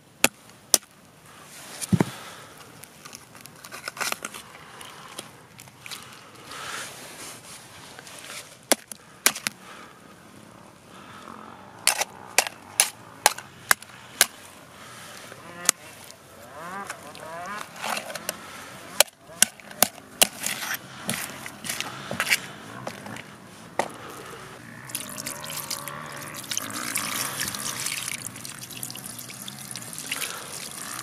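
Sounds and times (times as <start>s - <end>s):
eggshell cracking: 24.8s - 31.0s.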